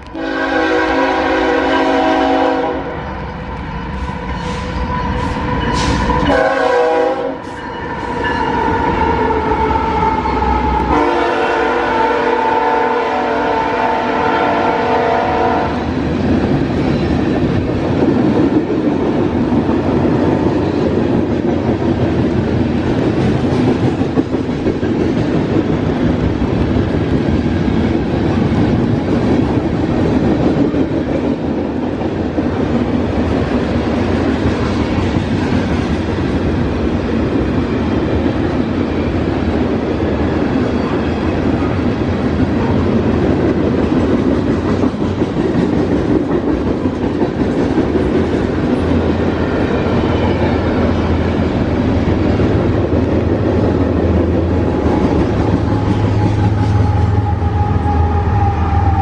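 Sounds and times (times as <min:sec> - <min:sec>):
freight train cars rumbling past: 0:00.0 - 0:59.0
locomotive air horn: 0:00.1 - 0:02.9, 0:04.4 - 0:15.8.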